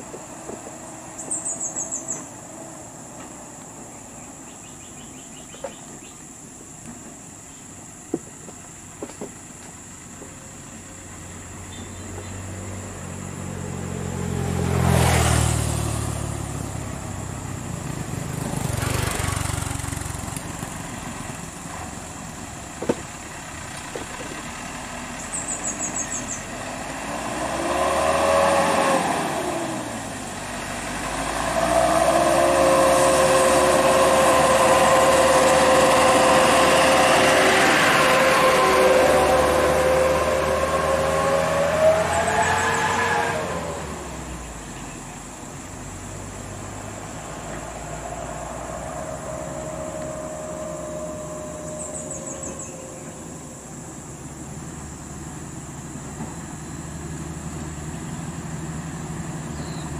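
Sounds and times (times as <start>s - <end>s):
heavy truck engines: 0.0s - 59.9s
loud steady engine whine: 0.0s - 59.9s.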